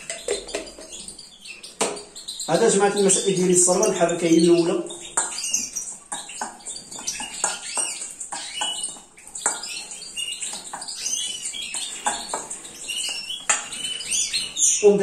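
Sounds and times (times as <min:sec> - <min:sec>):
cage birds chirping: 0:00.0 - 0:15.0
metal spoon scraping steel bowl: 0:05.1 - 0:14.6.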